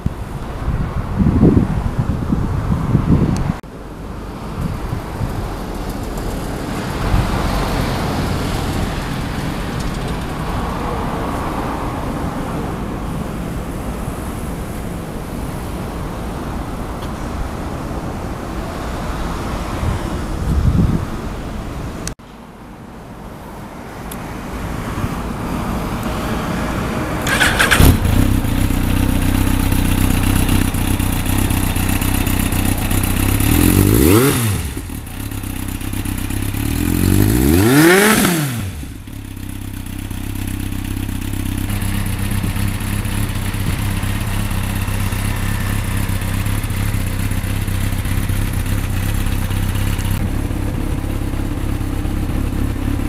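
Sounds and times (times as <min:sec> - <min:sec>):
motorcycle engine idling: 0:27.2 - 0:37.3, 0:38.7 - 0:53.0
motorcycle engine revving: 0:27.2 - 0:53.0.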